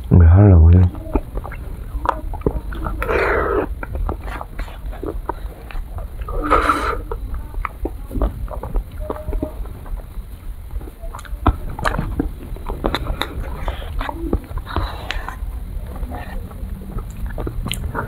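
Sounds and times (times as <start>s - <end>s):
slurping: 0.7s - 18.0s
spoon clicks and mouth smacks: 16.4s - 18.0s.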